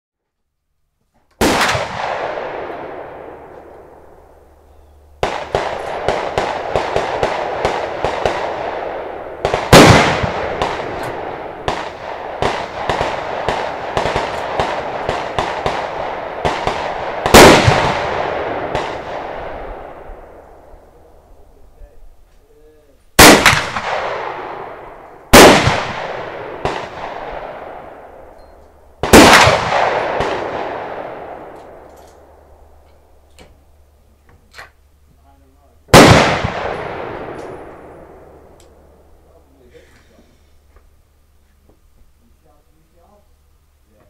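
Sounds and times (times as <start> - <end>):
loud rifle shots with echo: 1.4 - 4.6, 5.2 - 21.1, 23.2 - 28.3, 29.0 - 32.8, 35.9 - 39.2
quick string of quieter shots: 5.2 - 20.4, 23.2 - 28.3.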